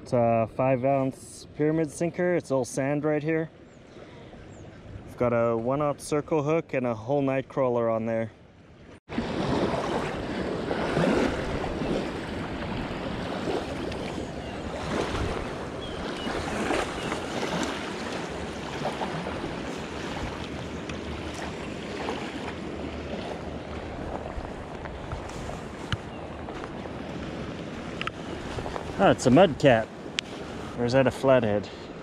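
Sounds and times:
river water lapping at bank: 0:00.0 - 0:32.0
wind on microphone: 0:09.1 - 0:30.8.

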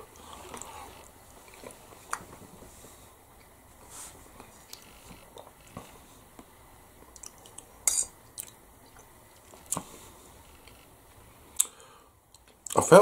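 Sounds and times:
person chewing food: 0:00.2 - 0:02.2, 0:07.0 - 0:09.9.

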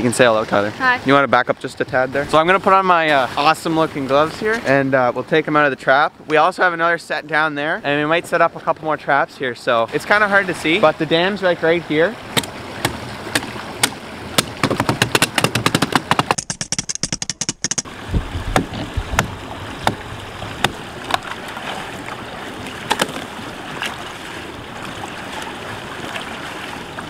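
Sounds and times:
creek water rushing: 0:00.0 - 0:05.8, 0:09.7 - 0:16.3, 0:17.8 - 0:27.0
axe chopping ice: 0:12.4 - 0:16.5.

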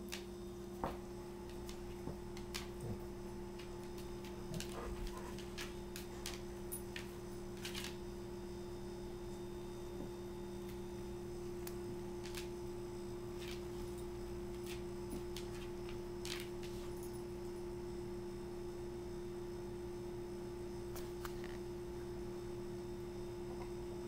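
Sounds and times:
steady electrical hum: 0:00.0 - 0:24.0
kitten scuffling on tile floor: 0:00.8 - 0:08.1, 0:13.3 - 0:17.0
dog claws clicking on tile: 0:01.5 - 0:08.0, 0:11.6 - 0:12.6, 0:13.4 - 0:16.9.

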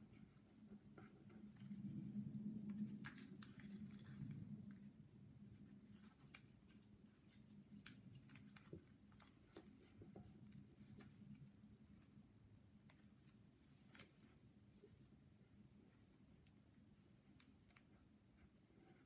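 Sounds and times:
paper crinkling and creasing: 0:00.1 - 0:12.2, 0:12.8 - 0:14.8.

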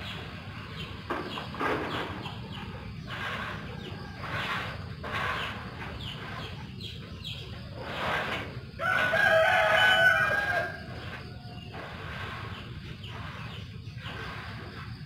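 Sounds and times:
rooster crowing: 0:08.7 - 0:11.7.

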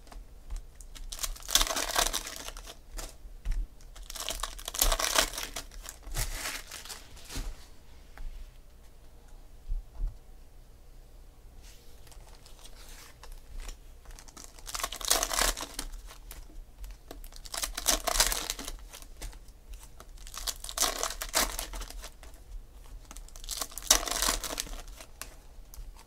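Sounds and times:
foil wrappers crinkling: 0:00.0 - 0:03.2, 0:03.8 - 0:07.5, 0:12.0 - 0:26.0.

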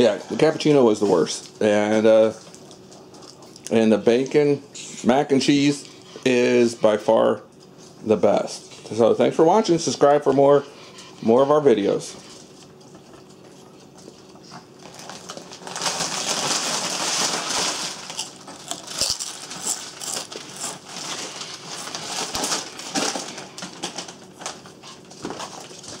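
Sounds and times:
foil chip bag crinkling: 0:14.7 - 0:26.0
chips crunching: 0:14.8 - 0:24.7.

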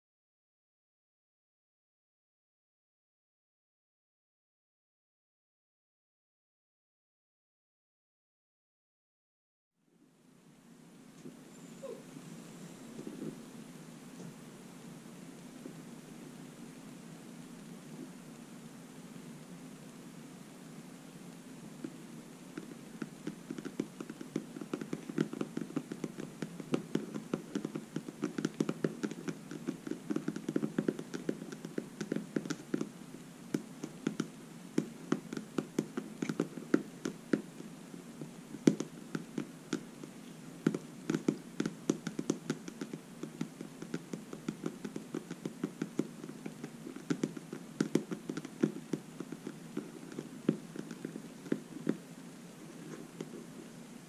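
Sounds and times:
fingernails tapping: 0:22.6 - 0:32.9, 0:33.6 - 0:37.6, 0:40.6 - 0:52.0.

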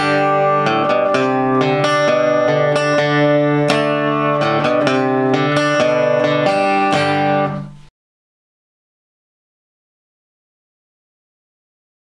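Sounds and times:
strummed acoustic guitar: 0:00.0 - 0:07.9.

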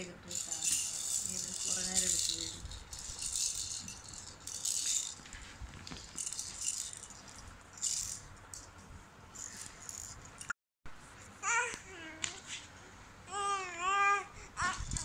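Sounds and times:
plastic baby rattle shaken: 0:00.3 - 0:05.4, 0:06.0 - 0:08.7, 0:09.4 - 0:10.2.

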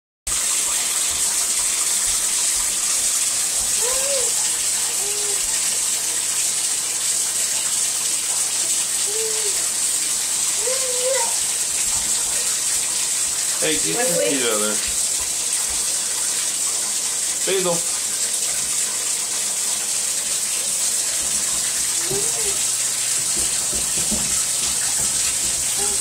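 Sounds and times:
tap water pouring into tub: 0:00.3 - 0:26.0
baby vocalizing: 0:09.0 - 0:09.6, 0:10.6 - 0:11.4, 0:22.0 - 0:22.6, 0:25.8 - 0:26.0.

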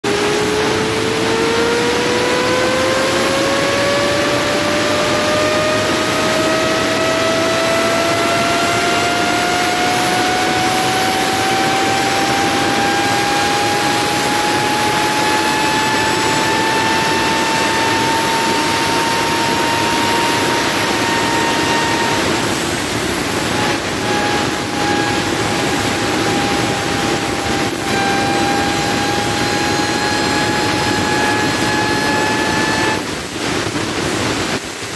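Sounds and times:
electric motor whine: 0:00.0 - 0:34.6
constant rushing noise: 0:00.0 - 0:34.9.

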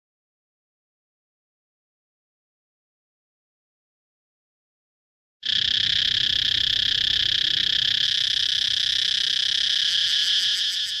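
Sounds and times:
cicada buzzing: 0:05.4 - 0:11.0.

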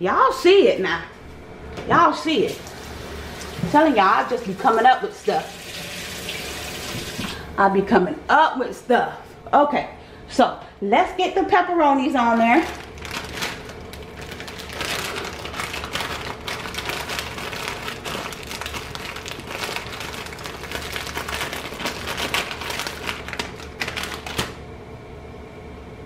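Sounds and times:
plastic bag crinkling: 0:12.2 - 0:24.6.

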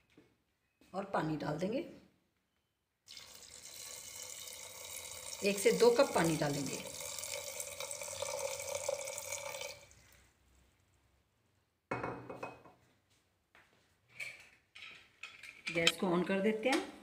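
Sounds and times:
water pouring into a metal pot: 0:03.1 - 0:10.2.

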